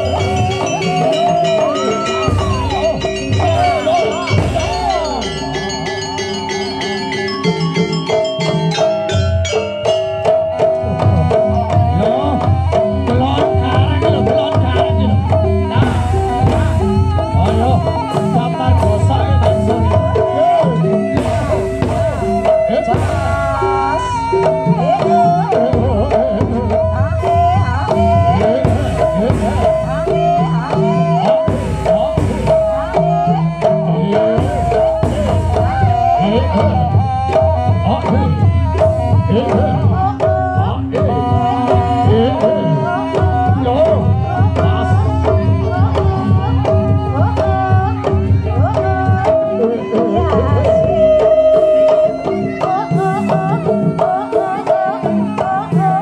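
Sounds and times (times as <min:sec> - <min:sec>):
gong-like tones: 0:00.0 - 0:10.4
sliding wavering melody: 0:00.0 - 0:12.4
hand drums: 0:00.0 - 0:56.0.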